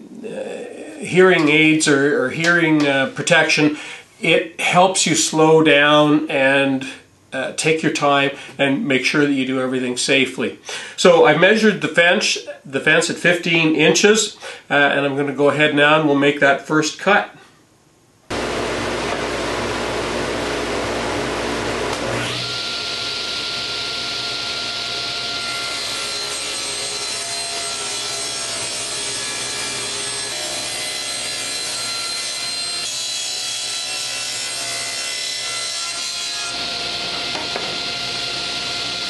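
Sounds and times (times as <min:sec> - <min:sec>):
high steady whine: 0:18.3 - 0:22.2
table saw cutting wood: 0:18.3 - 0:39.0.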